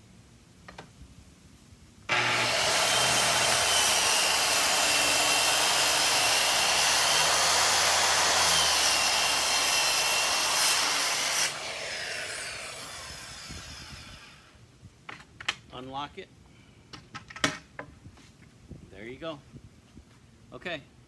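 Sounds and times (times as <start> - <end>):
circular saw cutting plywood: 2.1 - 14.5
saw blade winding down whine: 2.1 - 14.6.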